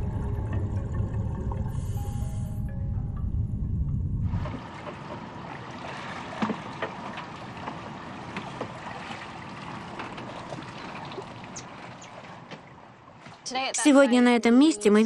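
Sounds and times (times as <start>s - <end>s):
background music: 0.0s - 4.6s, 13.7s - 15.0s
wind: 0.0s - 15.0s
water lapping against boat hull: 4.4s - 13.7s.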